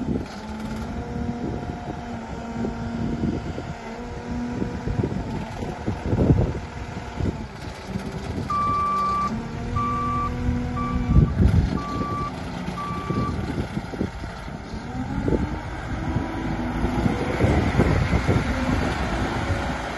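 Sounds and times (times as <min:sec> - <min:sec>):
diesel engine running: 0:00.0 - 0:19.9
reversing alarm beeps: 0:08.5 - 0:13.4.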